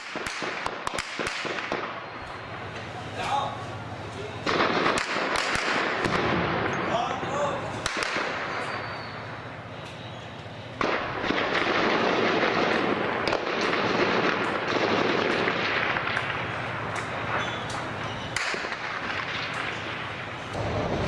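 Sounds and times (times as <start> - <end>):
gunfire: 0.0 - 2.1, 4.4 - 7.1, 7.8 - 9.0, 10.8 - 20.7.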